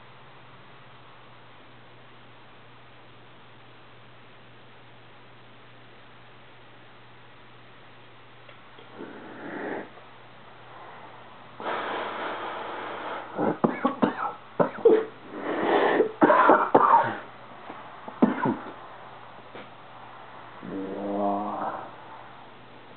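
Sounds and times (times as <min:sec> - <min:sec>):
hiss of drawing from a bong: 0:08.9 - 0:10.0, 0:10.6 - 0:13.6, 0:15.2 - 0:16.2
coughing and wheezing: 0:13.1 - 0:17.4, 0:18.2 - 0:18.8.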